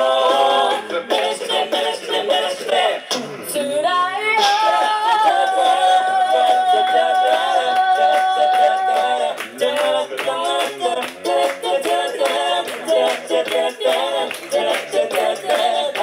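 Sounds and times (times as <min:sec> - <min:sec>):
a cappella group singing: 0:00.0 - 0:16.0.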